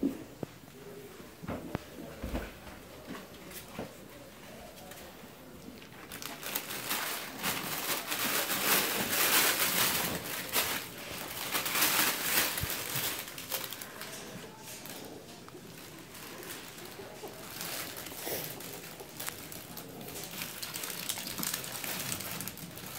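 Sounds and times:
fabric tunnel crinkling and rustling: 5.8s - 22.9s.

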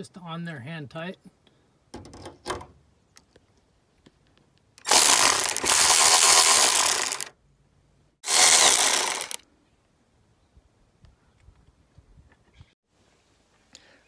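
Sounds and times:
power ratchet running: 4.8s - 7.3s, 8.2s - 9.4s.

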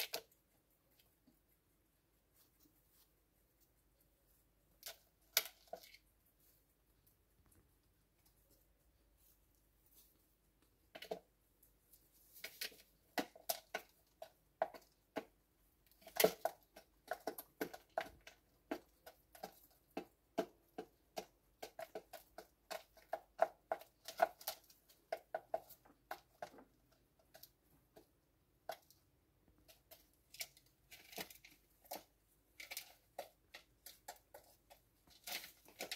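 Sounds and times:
pigeons pecking plastic dish: 12.3s - 35.9s.

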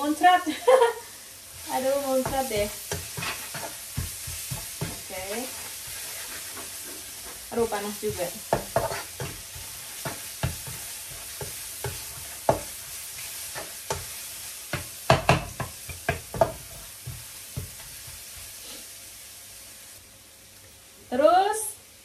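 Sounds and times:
paste sizzling in hot oil: 0.0s - 20.1s
spatula scraping a pan: 1.6s - 18.9s.

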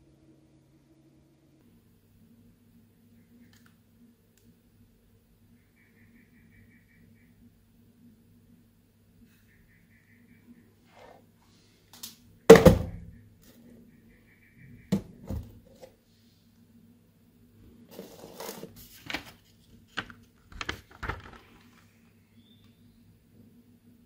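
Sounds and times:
plastic rustling: 17.9s - 21.9s.

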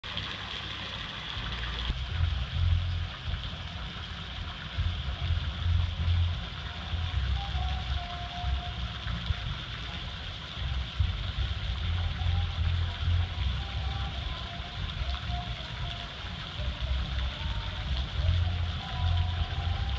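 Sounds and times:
fountain water splashing: 0.0s - 19.9s
low rumbles on microphone: 1.4s - 19.9s.

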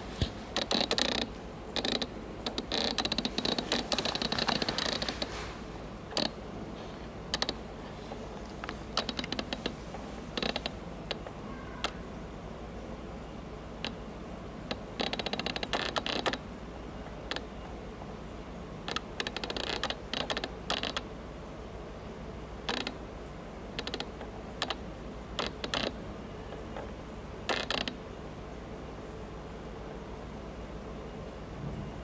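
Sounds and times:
rapid clicking and creaking: 0.0s - 5.4s, 6.1s - 12.0s, 14.7s - 16.4s, 18.9s - 21.1s, 22.6s - 23.0s, 23.8s - 24.8s, 25.4s - 26.0s, 27.5s - 28.0s.

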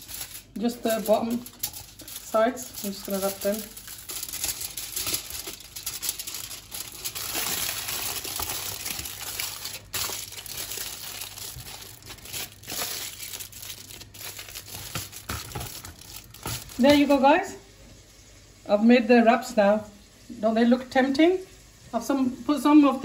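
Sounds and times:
aluminium foil crinkling: 0.0s - 17.5s.

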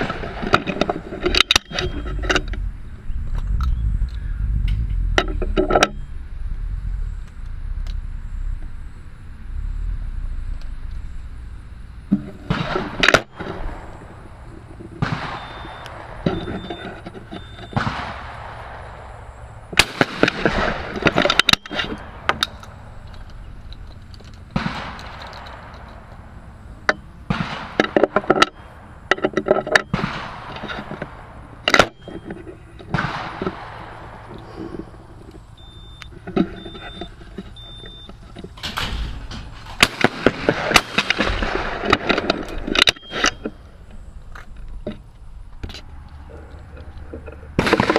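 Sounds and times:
gun handling knocks and rustles: 0.0s - 2.6s, 12.1s - 47.9s
shotgun shots: 12.4s - 14.0s, 15.0s - 16.6s, 17.7s - 22.4s, 24.5s - 26.1s, 27.3s - 28.2s, 29.9s - 32.0s, 32.9s - 34.3s, 38.6s - 42.3s, 47.6s - 47.9s.

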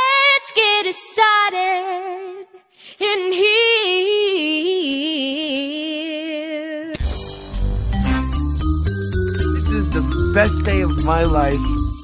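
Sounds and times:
girl singing with vibrato: 0.0s - 7.0s.

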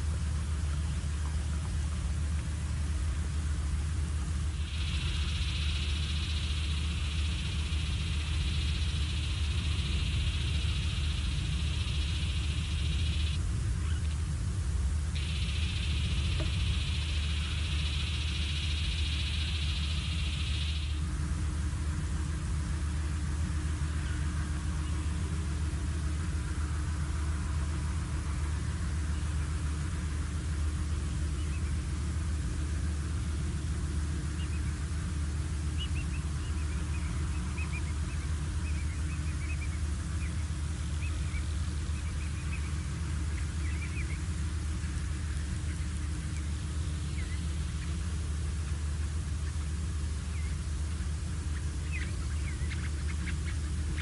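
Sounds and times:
steady low rumble: 0.0s - 54.0s
high bird chirps: 4.6s - 14.0s, 15.2s - 21.0s.

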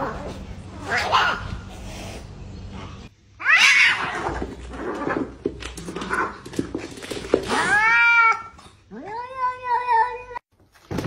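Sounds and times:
cats scuffling and thumping: 4.0s - 8.6s
cat yowling: 7.5s - 10.4s.

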